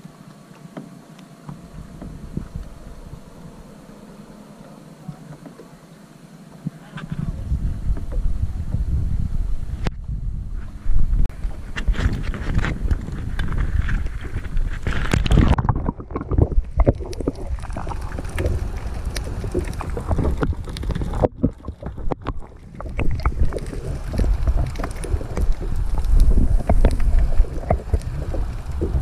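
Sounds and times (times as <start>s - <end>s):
underwater rumble: 1.0s - 29.0s
wind buffeting microphone: 1.6s - 3.6s, 7.0s - 29.0s
water sloshing: 11.6s - 29.0s.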